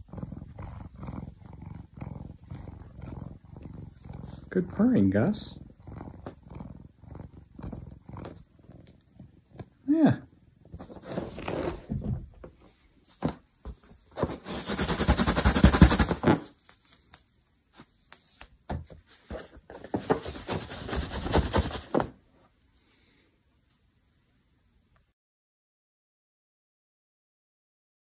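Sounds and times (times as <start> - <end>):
balloon rubbed against hair: 13.8 - 16.8, 19.2 - 22.1.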